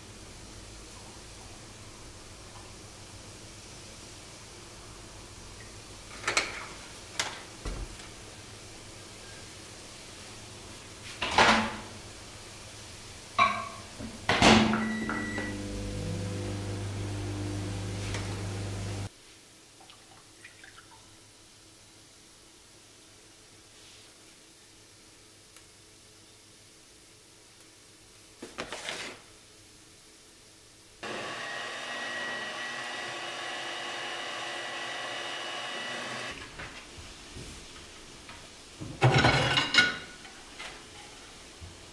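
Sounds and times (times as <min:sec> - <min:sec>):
microwave humming: 0:14.5 - 0:19.1, 0:31.0 - 0:36.4
short beep: 0:14.8 - 0:15.6
electric mixer whining: 0:15.2 - 0:19.1, 0:31.0 - 0:36.4.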